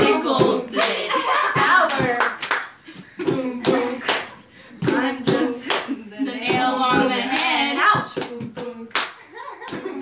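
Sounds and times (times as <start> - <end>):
women singing: 0.0 - 2.4, 3.0 - 10.0
women clapping hands: 1.6 - 2.7.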